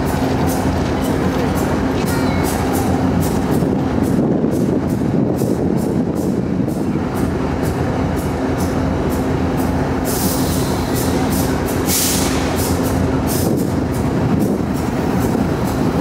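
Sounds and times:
diesel locomotive engine rumble: 0.0s - 16.0s
short bursts of hiss: 10.1s - 13.5s.

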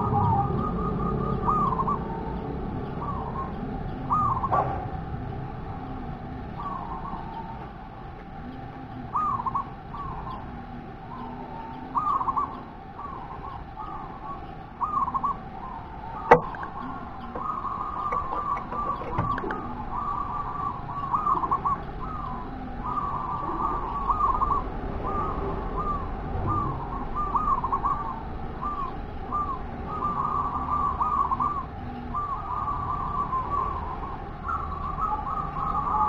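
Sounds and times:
dove cooing: 0.0s - 36.0s
sharp click: 16.3s - 16.8s.

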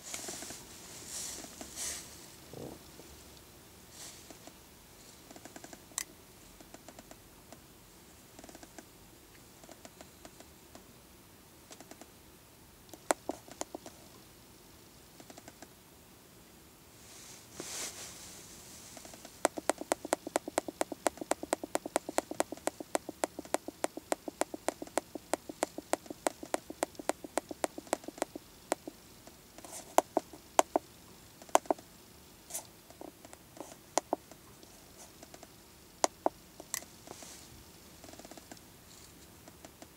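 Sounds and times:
short rustle: 0.0s - 2.3s, 17.0s - 19.4s
keypad buttons clicking: 19.5s - 28.9s.

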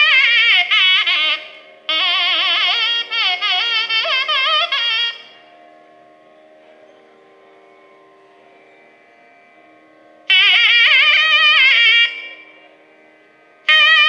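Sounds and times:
double reed wind instrument melody: 0.0s - 5.5s, 10.2s - 12.7s, 13.6s - 14.0s.

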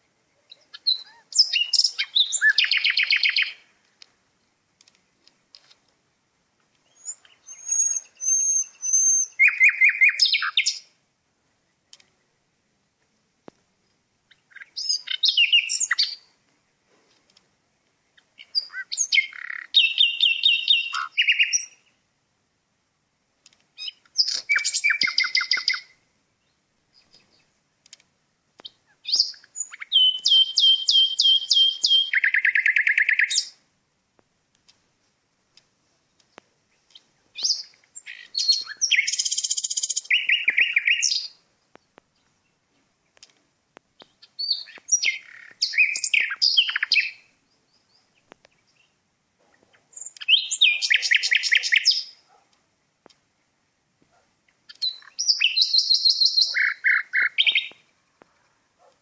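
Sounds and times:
songbird singing trills: 0.0s - 3.8s, 6.8s - 11.0s, 13.8s - 16.4s, 18.0s - 22.0s, 23.8s - 27.6s, 28.6s - 33.6s, 36.0s - 43.2s, 44.0s - 49.0s, 49.7s - 52.2s, 54.5s - 58.0s.

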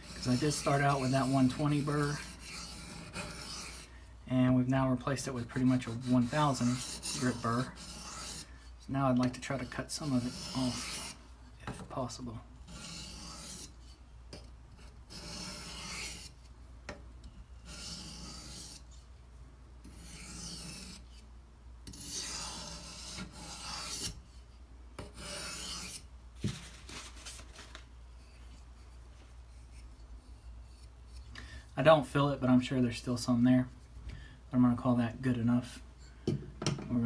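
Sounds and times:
knife scraping on whetstone: 0.0s - 3.9s, 5.2s - 8.5s, 9.3s - 11.2s, 12.6s - 14.0s, 14.8s - 16.4s, 17.6s - 19.0s, 19.8s - 21.2s, 21.9s - 24.3s, 25.0s - 26.1s.

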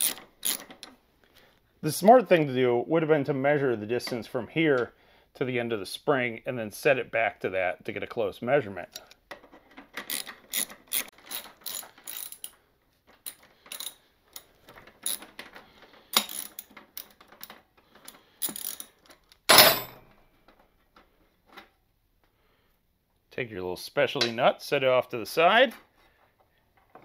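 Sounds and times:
socket ratchet clicking: 0.0s - 0.9s, 10.0s - 12.5s, 16.1s - 17.1s.

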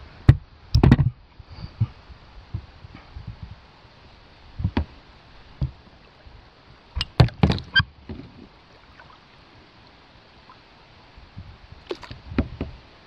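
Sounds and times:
paddle splashing against kayak: 7.0s - 10.6s, 11.8s - 12.8s.

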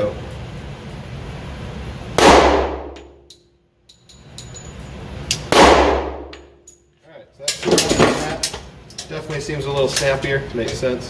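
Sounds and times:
pistol shots: 2.2s - 3.2s, 5.4s - 6.4s.

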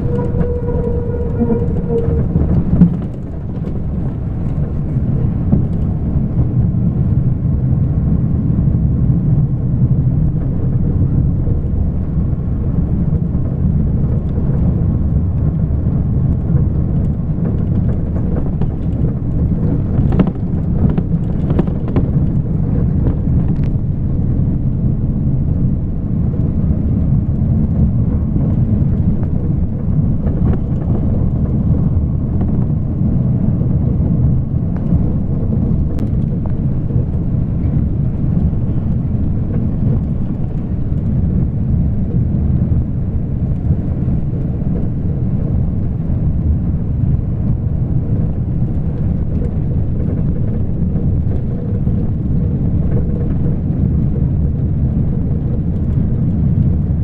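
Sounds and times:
vehicle interior road rumble: 0.0s - 57.0s.

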